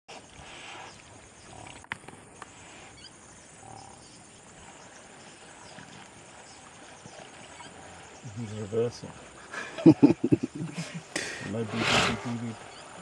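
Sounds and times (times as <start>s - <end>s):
steady background hiss: 0.2s - 13.0s
hippopotamus grunting: 3.5s - 13.0s.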